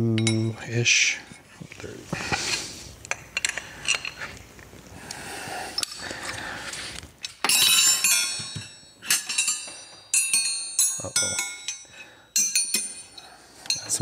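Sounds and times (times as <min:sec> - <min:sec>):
metal wrenches clinking: 0:00.0 - 0:00.6, 0:07.2 - 0:14.0.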